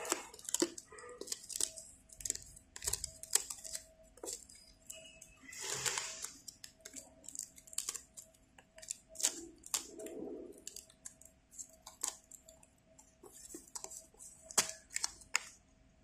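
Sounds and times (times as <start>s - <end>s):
cardboard crackling and snapping: 0.0s - 4.5s, 5.8s - 12.4s, 13.4s - 15.5s.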